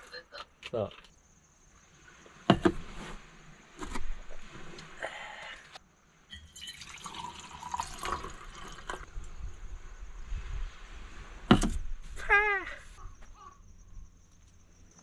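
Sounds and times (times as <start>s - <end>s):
water running and splashing: 6.5s - 9.1s.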